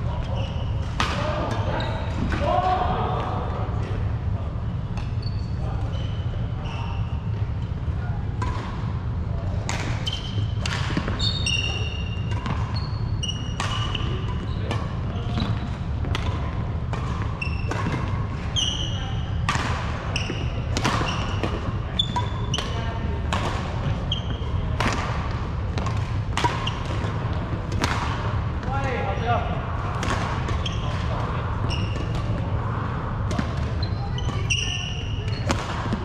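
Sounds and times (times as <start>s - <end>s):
steady low hum: 0.0s - 36.0s
racket hitting shuttlecock: 8.4s - 8.9s, 9.6s - 18.8s, 19.4s - 23.8s, 24.8s - 28.4s, 29.9s - 31.2s, 31.8s - 36.0s.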